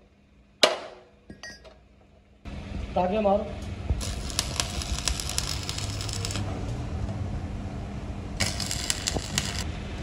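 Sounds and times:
arc welding crackling: 4.0 - 6.6, 8.4 - 9.7.

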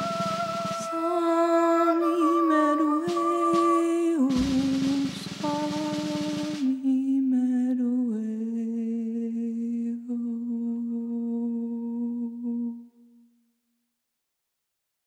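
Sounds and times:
cymbal wash: 0.0 - 6.9
woman humming a slow melody: 0.0 - 13.1.

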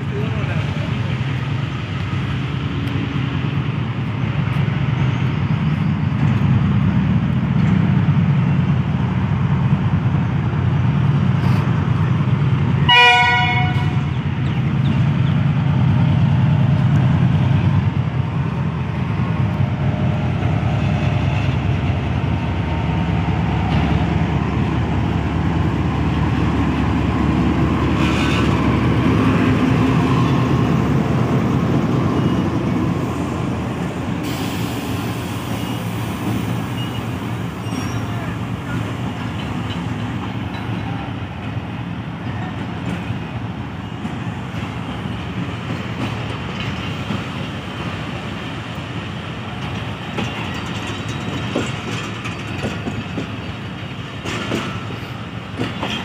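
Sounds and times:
diesel locomotive engine running: 0.0 - 56.0
train horn blast: 12.8 - 14.0.

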